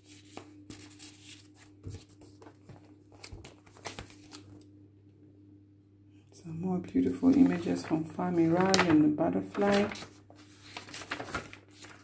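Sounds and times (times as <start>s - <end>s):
paper rustling and crinkling: 0.0s - 4.6s, 7.0s - 12.0s
page turning: 0.0s - 4.7s, 7.1s - 12.0s.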